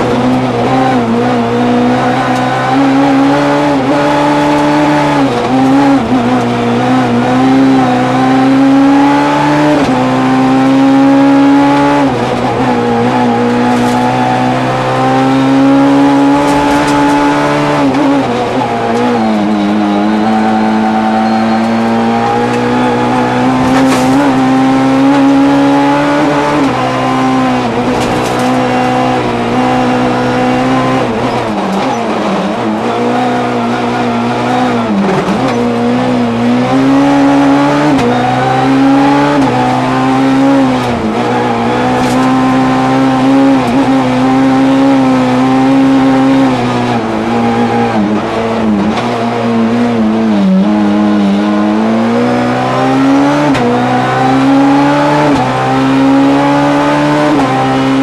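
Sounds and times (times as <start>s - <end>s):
rally car engine racing: 0.0s - 58.0s.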